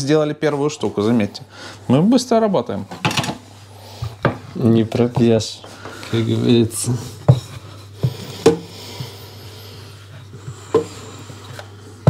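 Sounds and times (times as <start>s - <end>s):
steady low hum: 0.0s - 12.0s
soft rubbing of dough: 0.1s - 12.0s
knocks on a work surface: 8.4s - 8.7s.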